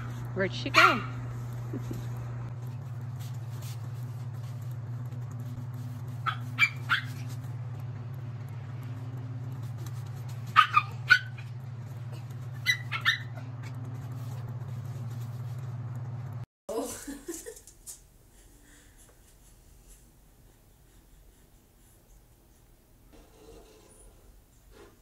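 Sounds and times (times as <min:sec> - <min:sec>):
steady low hum: 0:00.0 - 0:25.0
small dog barking: 0:00.6 - 0:01.2, 0:06.2 - 0:07.4, 0:10.5 - 0:11.5, 0:12.6 - 0:13.4.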